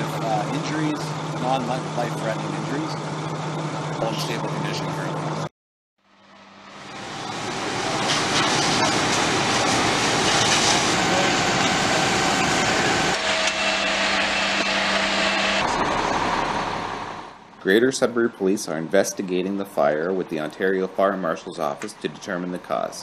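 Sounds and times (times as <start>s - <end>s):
engine hum: 0.0s - 23.0s
fire rushing: 7.0s - 17.2s.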